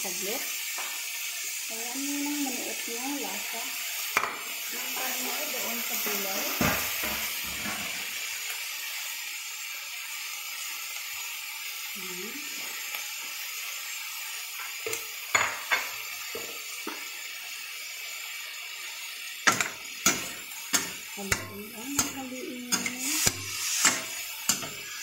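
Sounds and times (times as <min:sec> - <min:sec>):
food sizzling in a wok: 0:00.0 - 0:25.0
metal spatula scraping pan: 0:19.4 - 0:25.0.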